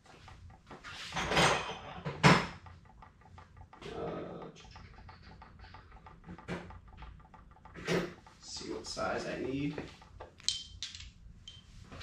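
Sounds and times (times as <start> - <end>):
metal tools clattering: 10.4 - 11.7.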